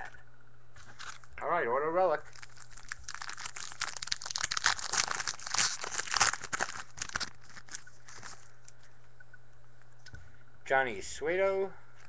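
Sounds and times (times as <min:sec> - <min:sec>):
plastic wrapper tearing and crinkling: 0:02.2 - 0:08.5.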